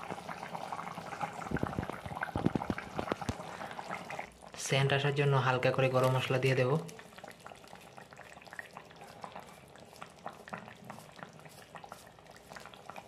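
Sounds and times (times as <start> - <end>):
curry bubbling in a pan: 0.0 - 13.0.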